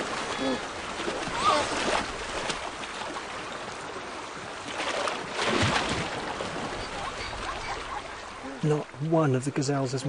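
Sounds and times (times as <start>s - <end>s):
river water splashing: 0.0s - 10.0s.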